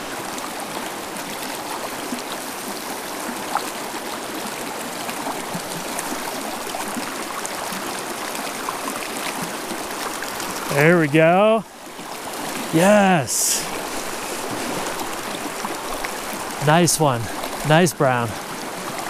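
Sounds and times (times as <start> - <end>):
river rushing over rocks: 6.0 - 19.0.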